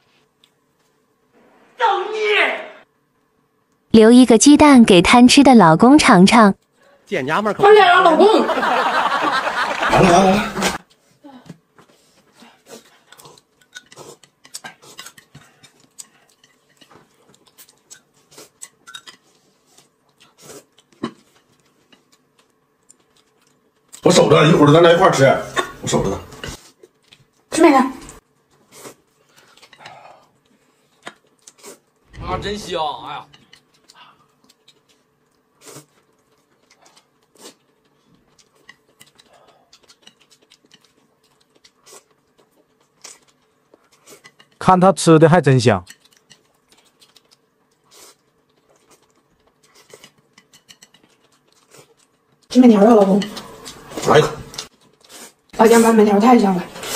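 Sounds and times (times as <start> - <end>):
soft chewing: 0.0 - 1.1, 10.8 - 24.2, 26.3 - 32.2, 33.2 - 44.6, 45.8 - 55.9.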